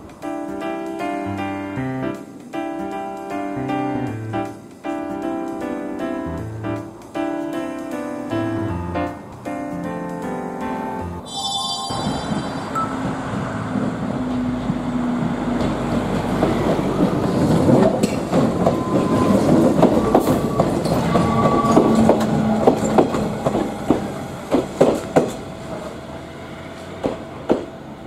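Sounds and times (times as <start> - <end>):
electric train passing: 0.0 - 28.0
wheels clacking over rail joints: 12.3 - 28.0
faint wheel squeals: 18.7 - 23.0.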